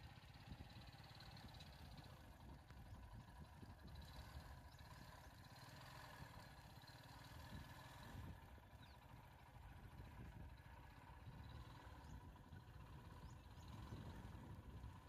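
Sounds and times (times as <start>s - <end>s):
idling vehicle engine rumble: 0.0s - 15.0s.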